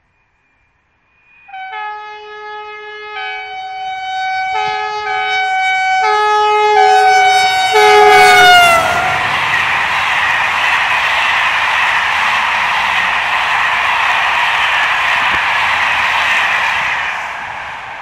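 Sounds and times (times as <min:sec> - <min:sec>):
two-tone train horn blasts: 0:01.5 - 0:09.2
rushing rumble of train coaches: 0:02.9 - 0:18.0.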